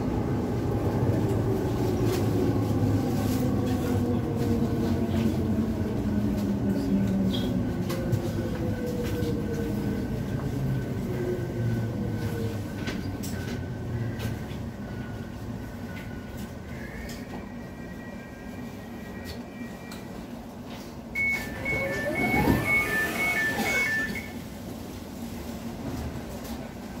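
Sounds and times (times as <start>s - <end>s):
train wheels rumbling on rail: 0.0s - 27.0s
traction motor whine: 21.4s - 24.3s.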